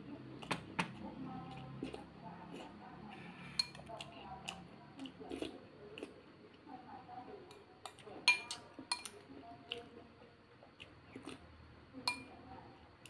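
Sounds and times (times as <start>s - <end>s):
chewing and slurping: 1.4s - 6.7s, 10.6s - 11.5s
spoon clinking ceramic bowl: 8.3s - 9.1s, 12.0s - 12.3s.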